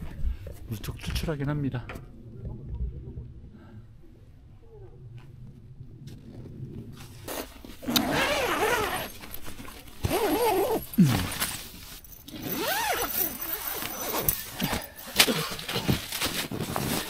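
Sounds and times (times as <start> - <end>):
zipper being pulled: 7.0 - 14.8
nylon fabric rustling: 7.0 - 17.0.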